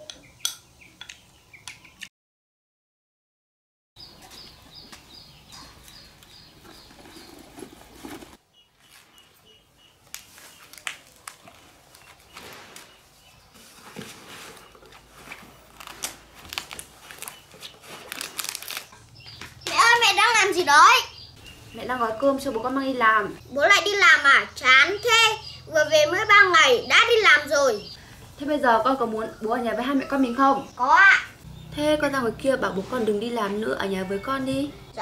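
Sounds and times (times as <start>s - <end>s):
small bird chirping: 4.0s - 13.8s, 14.4s - 35.0s
leaves rustling and crinkling: 5.8s - 20.2s.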